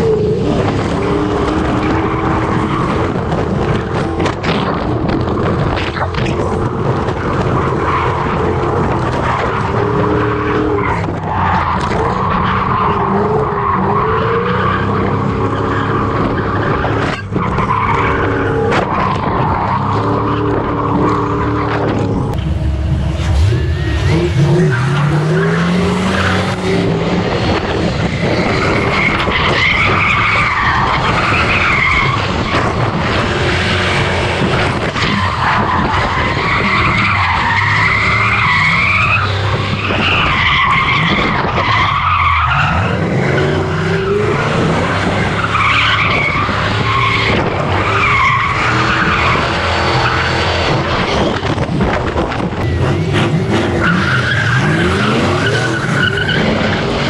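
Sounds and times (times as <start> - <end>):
tires squealing: 0.0 - 57.0
car engine revving hard: 19.9 - 57.0.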